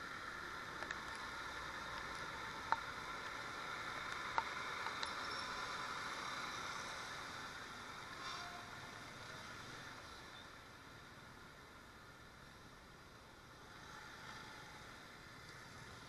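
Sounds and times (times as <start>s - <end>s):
wet road traffic: 0.0s - 16.0s.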